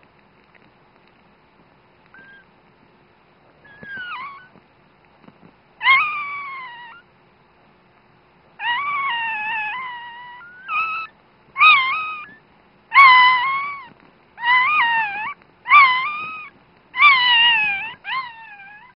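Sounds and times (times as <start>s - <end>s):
puppy crying: 2.2s - 2.5s, 3.6s - 4.6s, 5.8s - 7.1s, 8.6s - 19.0s.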